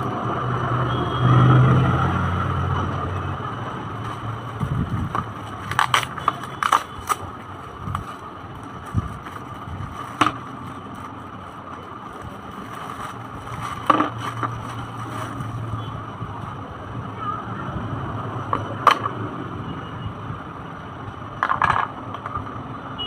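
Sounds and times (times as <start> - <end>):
plastic packaging crinkling: 4.0 - 15.6.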